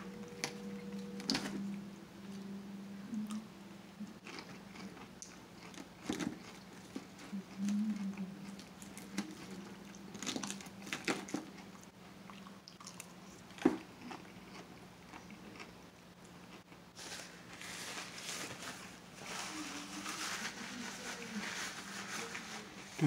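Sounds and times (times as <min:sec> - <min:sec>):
faint steady hum: 0:00.0 - 0:23.0
chewing and crunching salad: 0:04.0 - 0:23.0
paper napkin rustling: 0:17.0 - 0:23.0.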